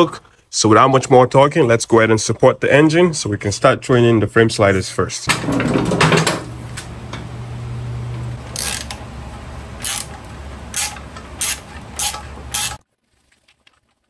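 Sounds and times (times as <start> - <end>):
steady low hum: 5.4 - 12.8
ratchet wrench rasping: 8.6 - 9.0, 9.8 - 12.8.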